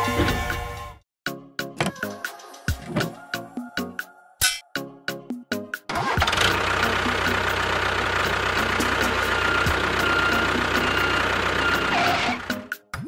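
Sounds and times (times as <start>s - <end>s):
tractor motor pulsing drone: 5.9s - 12.7s.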